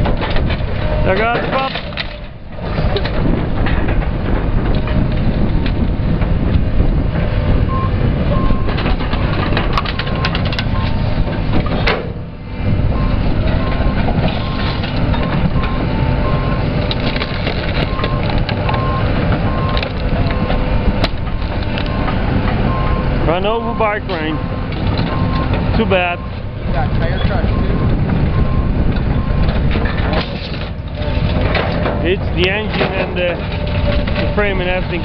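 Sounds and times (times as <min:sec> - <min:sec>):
plastic and metal cracking: 0:00.0 - 0:05.8, 0:16.8 - 0:18.8, 0:29.0 - 0:35.0
excavator engine under load: 0:00.0 - 0:35.0
beeping alarm: 0:12.9 - 0:16.6, 0:22.7 - 0:26.4, 0:27.1 - 0:29.5.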